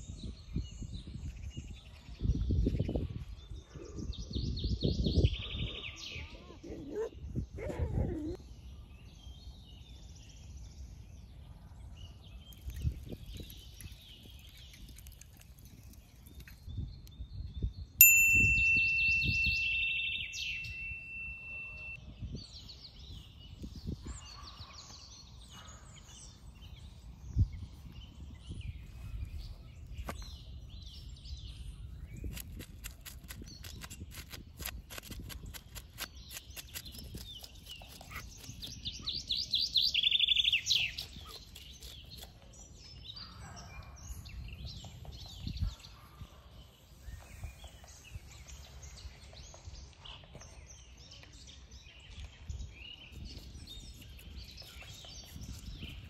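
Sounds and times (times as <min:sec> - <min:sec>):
songbirds chirping: 0:00.0 - 0:56.0
bell-like ringing tone: 0:18.0 - 0:22.0.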